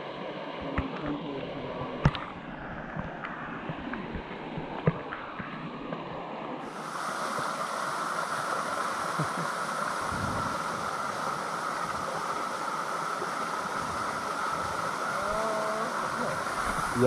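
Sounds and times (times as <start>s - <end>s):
waterfall splashing into pool: 6.6s - 17.0s.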